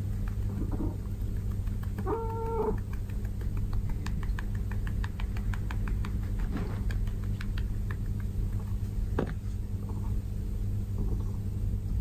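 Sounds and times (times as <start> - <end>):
cat meowing: 2.1 - 2.8.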